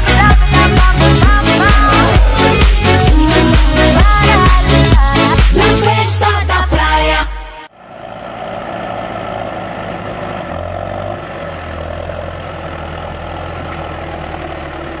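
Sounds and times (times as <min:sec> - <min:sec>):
tractor diesel engine running: 0:00.0 - 0:05.9, 0:07.7 - 0:15.0.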